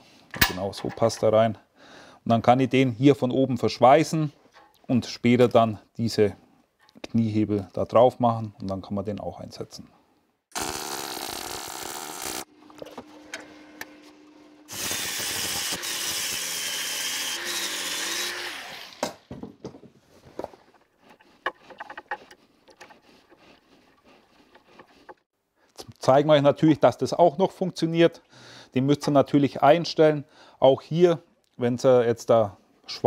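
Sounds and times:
metal parts clicking and knocking: 0.3 - 1.2
angle grinder grinding metal: 10.6 - 12.5, 13.2 - 19.0.

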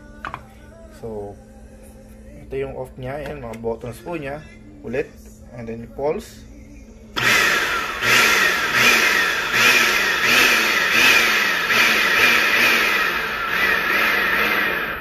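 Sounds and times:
blender motor whining in pulses: 7.2 - 15.0.

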